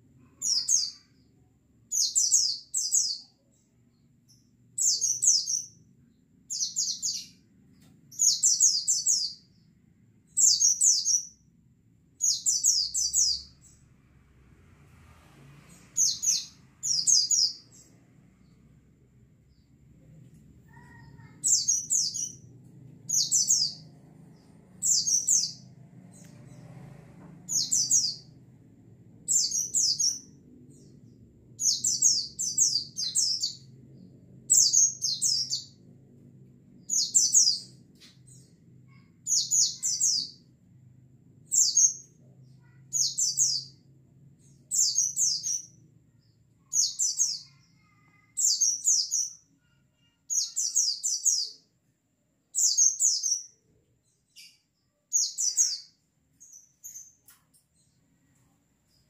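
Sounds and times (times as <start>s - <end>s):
bird twittering song: 1.9s - 9.7s, 10.3s - 11.4s, 12.2s - 13.8s, 23.1s - 26.6s, 29.3s - 35.8s.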